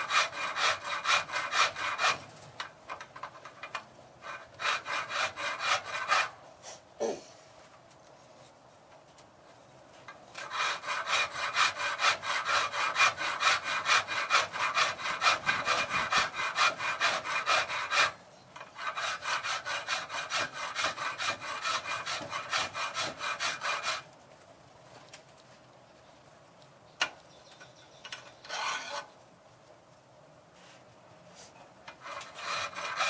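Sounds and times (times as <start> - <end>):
hand file rasping on metal: 0.0 - 2.2, 4.2 - 6.3, 10.4 - 24.1, 28.4 - 29.1, 31.9 - 33.0.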